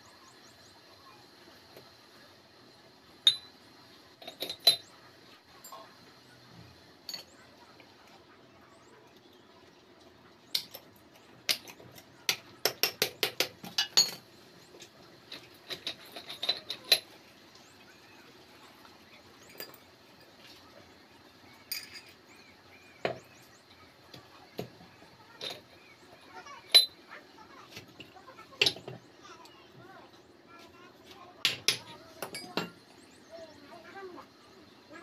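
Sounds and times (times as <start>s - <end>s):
steel gears clinking: 4.2s - 5.0s, 21.6s - 22.3s, 26.6s - 27.0s.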